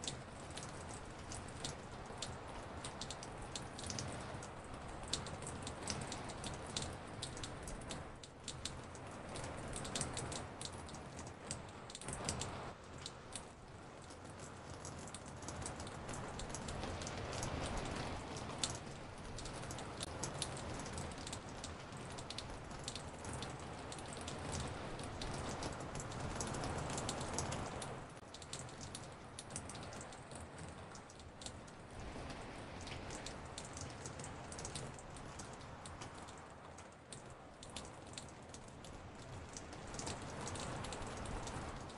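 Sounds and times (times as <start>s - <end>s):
raindrops pattering: 0.0s - 41.9s
steady rain hiss: 0.0s - 41.9s.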